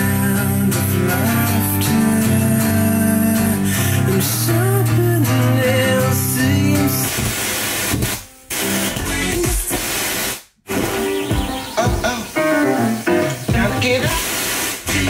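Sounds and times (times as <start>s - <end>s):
guitar music on radio: 0.0s - 15.0s
radio tuning knob turning: 7.0s - 11.2s.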